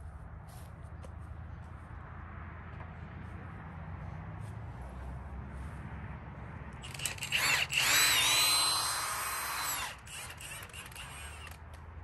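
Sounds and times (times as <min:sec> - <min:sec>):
cordless drill motor whine: 0:06.8 - 0:11.8.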